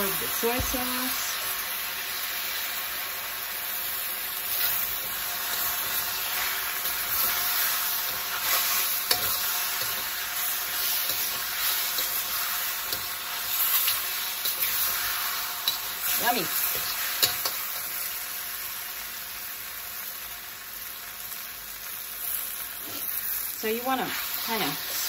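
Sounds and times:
noodles sizzling in a wok: 0:00.0 - 0:25.0
metal spatula scraping wok: 0:04.4 - 0:18.0, 0:22.8 - 0:25.0.

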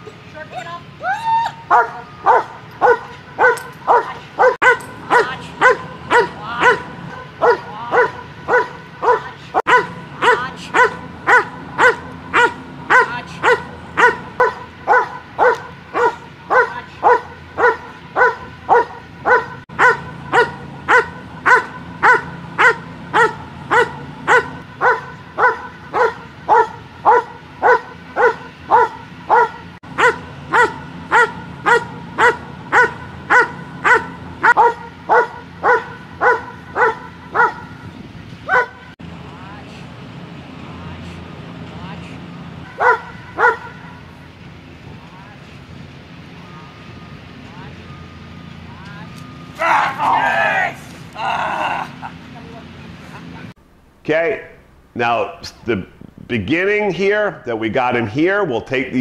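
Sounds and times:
dog barking rhythmically: 0:01.7 - 0:37.8, 0:38.5 - 0:38.9, 0:42.7 - 0:44.0.

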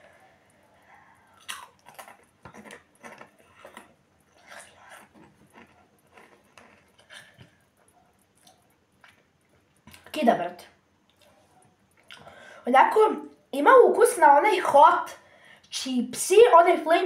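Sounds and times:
crunching of chips being chewed: 0:01.2 - 0:10.1.

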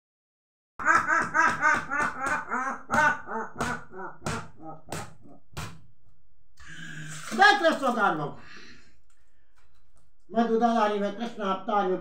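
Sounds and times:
man giving rhythmic vocal cries: 0:00.8 - 0:05.4.

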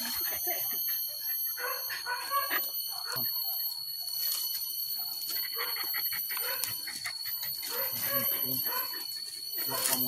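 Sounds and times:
high-pitched ringing drone: 0:00.0 - 0:10.0
dog whining and yelping: 0:05.0 - 0:10.0.

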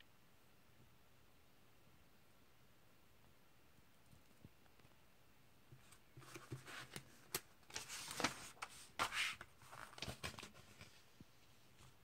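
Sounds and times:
paper pages rustling: 0:05.8 - 0:12.0.

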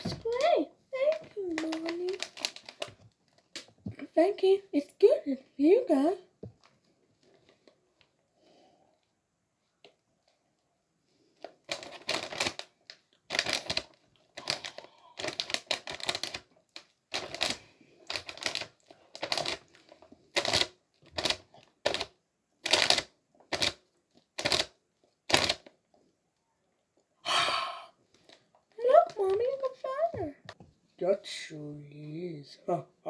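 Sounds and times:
chips being chewed with crunches: 0:11.6 - 0:25.7.

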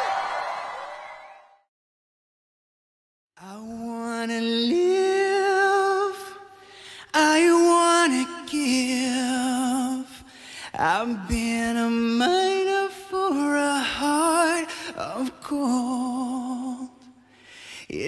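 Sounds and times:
man singing high with vibrato: 0:03.4 - 0:17.3.

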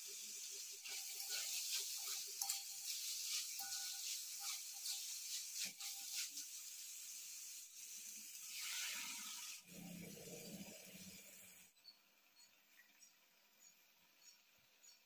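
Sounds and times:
vegetables sizzling in a pan: 0:00.0 - 0:11.7
metal spatula scraping a pan: 0:00.2 - 0:09.7.

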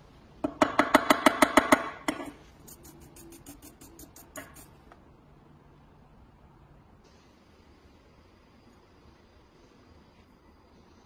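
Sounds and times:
brush scratching metal: 0:02.6 - 0:04.7.

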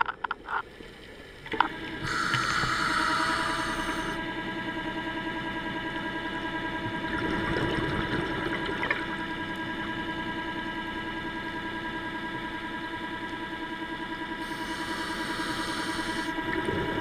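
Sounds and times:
underwater scooter motor whine: 0:00.0 - 0:17.0
bubbles gurgling: 0:06.9 - 0:09.2.

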